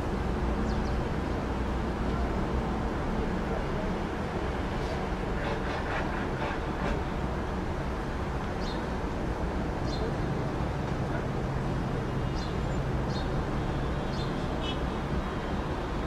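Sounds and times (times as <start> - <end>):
small birds chirping: 8.6 - 8.9, 14.0 - 14.8.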